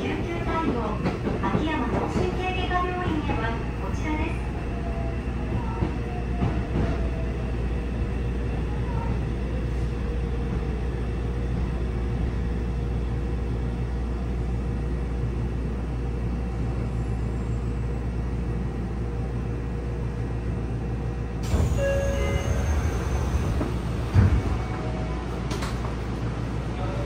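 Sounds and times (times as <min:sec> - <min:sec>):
train carriage equipment hum: 0:00.0 - 0:27.0
high ringing tones: 0:21.7 - 0:23.4.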